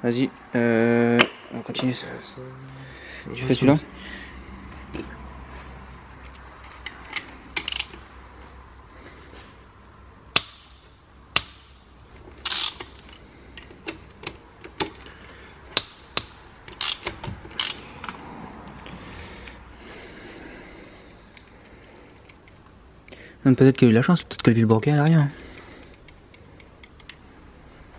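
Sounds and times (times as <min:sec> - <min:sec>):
metallic clicks of hand tools: 0:06.2 - 0:08.0, 0:12.4 - 0:15.0, 0:15.7 - 0:18.2.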